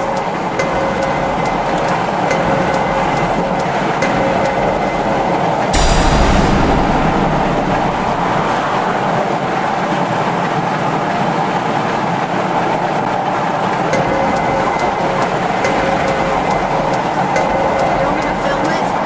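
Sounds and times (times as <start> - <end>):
short rush with low rumble: 5.8 - 9.4.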